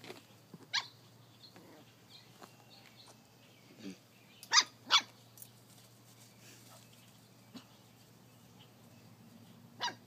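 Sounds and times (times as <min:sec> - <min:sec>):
dog yipping: 0:00.7 - 0:01.0, 0:04.5 - 0:05.2, 0:09.8 - 0:10.0
dog barking loudly: 0:04.5 - 0:05.2, 0:09.8 - 0:10.0.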